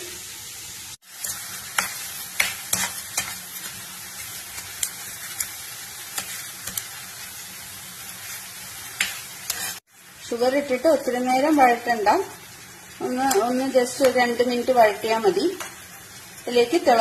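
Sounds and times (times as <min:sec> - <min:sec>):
onions sizzling in a pan: 0:00.0 - 0:17.0
spatula scraping a pan: 0:01.1 - 0:09.8.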